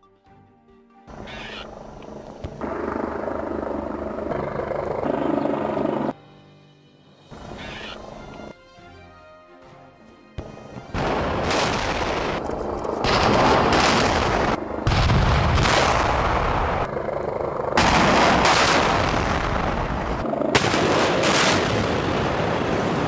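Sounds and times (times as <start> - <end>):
demolition charges detonating: 11.0 - 16.9, 17.8 - 23.0.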